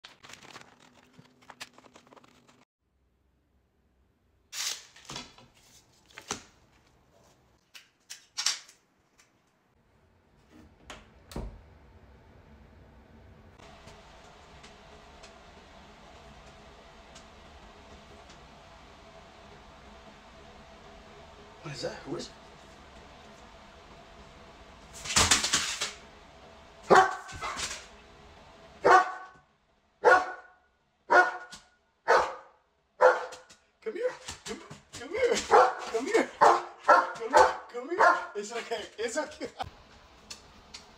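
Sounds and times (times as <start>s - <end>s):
stiff paper crinkling: 0.0s - 2.6s
dog barking: 26.9s - 27.6s, 28.8s - 29.3s, 30.0s - 31.5s, 32.1s - 33.4s, 35.4s - 38.4s.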